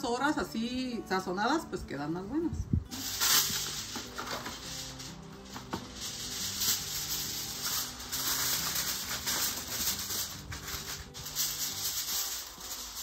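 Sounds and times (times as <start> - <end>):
aluminium foil crinkling: 2.9 - 13.0.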